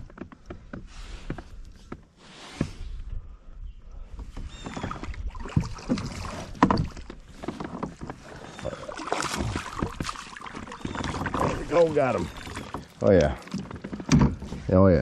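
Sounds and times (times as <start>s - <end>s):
fish splashing in water: 8.2s - 13.5s.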